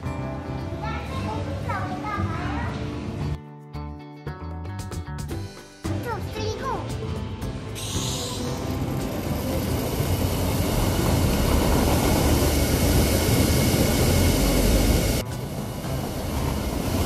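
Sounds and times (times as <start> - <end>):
rollers rumbling under sled tubes: 7.7 - 17.0.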